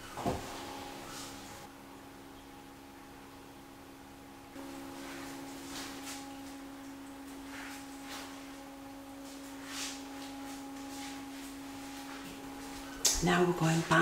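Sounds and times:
steady hum at one pitch: 0:00.0 - 0:14.0.

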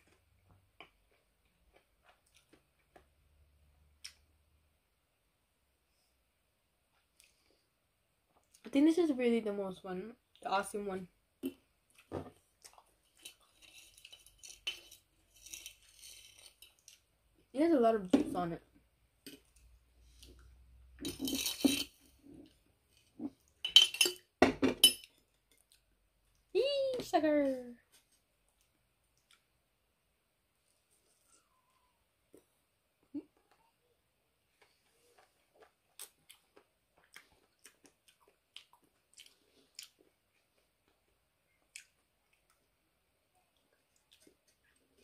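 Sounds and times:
person chewing wetly: 0:00.8 - 0:03.0, 0:11.4 - 0:13.6, 0:34.5 - 0:42.8, 0:43.4 - 0:45.0
eating sounds: 0:34.6 - 0:42.7.

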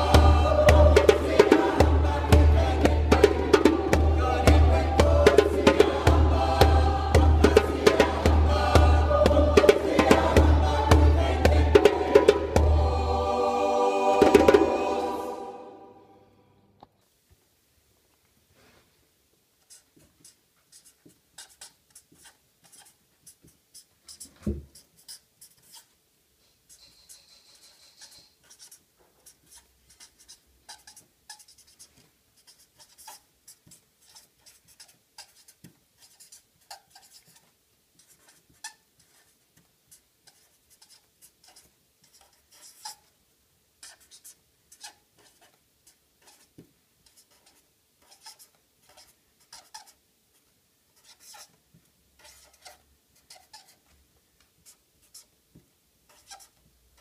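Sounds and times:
marker pen scratching on paper: 0:00.0 - 0:12.6, 0:19.6 - 0:26.0, 0:26.6 - 0:43.2, 0:43.8 - 0:51.6, 0:52.2 - 0:55.4, 0:56.0 - 0:57.0
squeaky pen stroke: 0:19.7 - 0:43.1, 0:43.8 - 0:50.0, 0:51.0 - 0:51.6, 0:52.2 - 0:54.0, 0:56.1 - 0:56.6.

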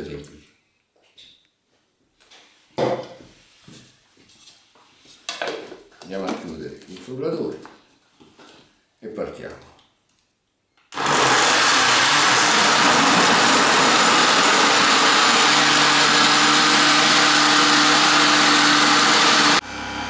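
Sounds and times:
blender motor running: 0:10.9 - 0:20.0.

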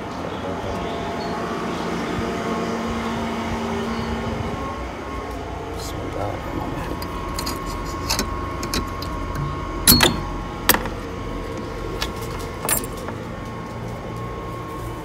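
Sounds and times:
steady hum: 0:00.0 - 0:15.0
padlock and latch clanking: 0:07.0 - 0:11.0, 0:12.0 - 0:13.2.

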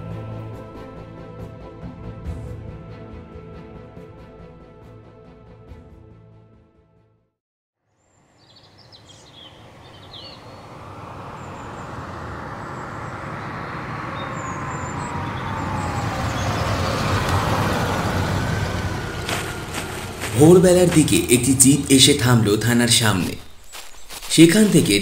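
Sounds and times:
birds chirping: 0:08.4 - 0:25.0
jeep driving up: 0:09.0 - 0:23.0.

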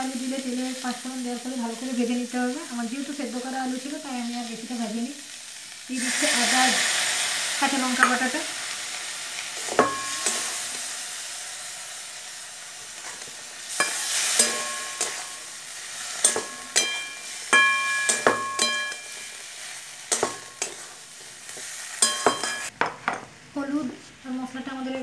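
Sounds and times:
food sizzling in a pan: 0:00.0 - 0:25.0
metal spatula knocking and scraping pan: 0:09.7 - 0:10.6, 0:13.8 - 0:15.4, 0:16.2 - 0:19.3, 0:20.1 - 0:20.9, 0:21.6 - 0:23.3.

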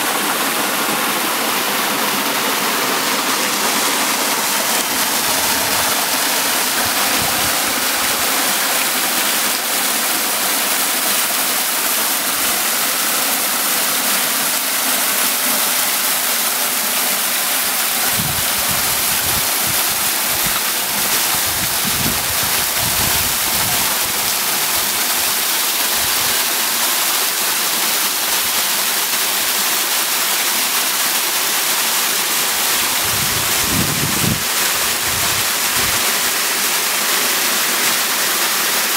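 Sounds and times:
water pouring into pool: 0:00.0 - 0:38.9.

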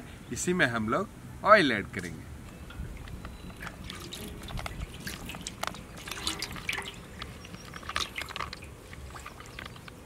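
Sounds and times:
oil splashing into hot pot: 0:02.7 - 0:09.9
oil crackling: 0:02.7 - 0:10.0.

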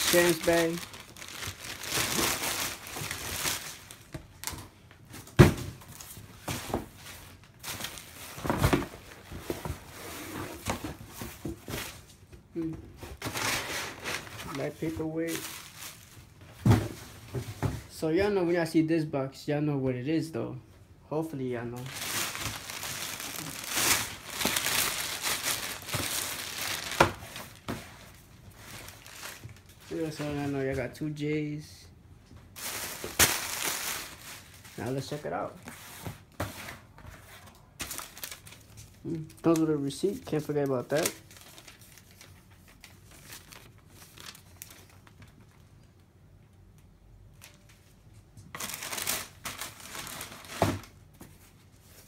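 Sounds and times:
plastic bag crinkling: 0:00.0 - 0:04.5, 0:13.4 - 0:16.3, 0:21.8 - 0:30.4, 0:32.6 - 0:35.3, 0:37.8 - 0:45.7, 0:48.5 - 0:50.9
bubble wrap rustling: 0:00.0 - 0:12.2, 0:13.0 - 0:17.3, 0:21.8 - 0:30.7, 0:32.5 - 0:36.4, 0:37.1 - 0:46.0, 0:47.3 - 0:52.0.

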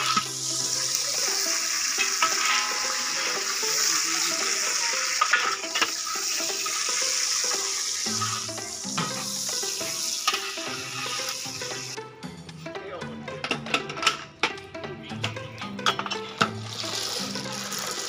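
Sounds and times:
oil sizzling in a wok: 0:00.0 - 0:12.0, 0:16.4 - 0:18.0.

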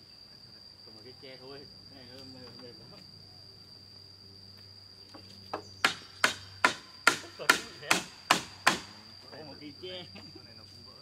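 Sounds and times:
high-pitched insect drone: 0:00.0 - 0:11.0
hammer driving nail into wood: 0:05.8 - 0:08.9.

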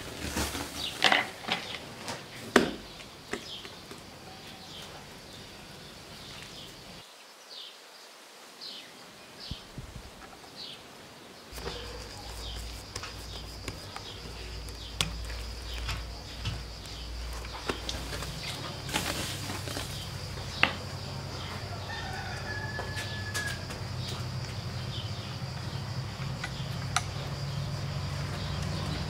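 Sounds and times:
small birds chirping: 0:00.2 - 0:29.0
steady low hum: 0:11.6 - 0:21.9.

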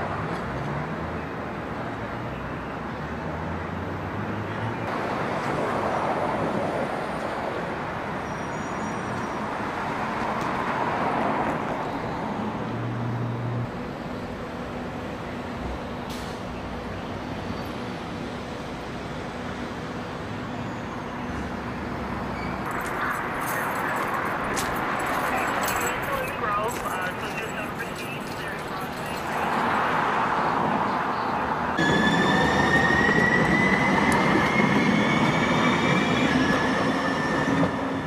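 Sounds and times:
vehicles passing: 0:00.0 - 0:35.3
steady low traffic hum: 0:09.0 - 0:32.0.

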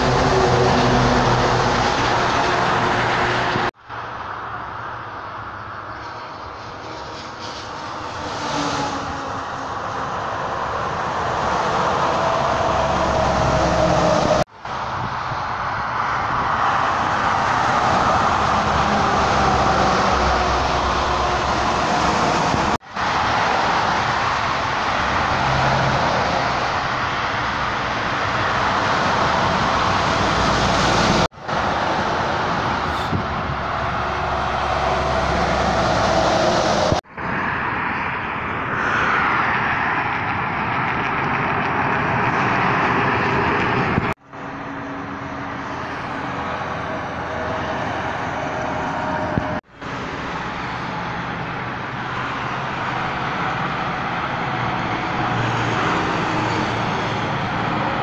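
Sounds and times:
highway traffic passing: 0:00.0 - 0:58.0.

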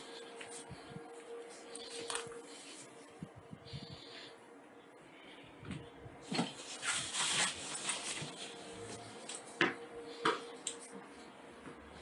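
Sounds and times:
faint steady tone: 0:00.0 - 0:06.2.

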